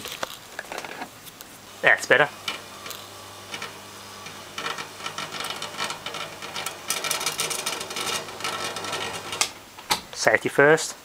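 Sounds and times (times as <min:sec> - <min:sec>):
crackling buzz of arcing: 0:00.0 - 0:10.2
transformer humming: 0:01.6 - 0:09.7.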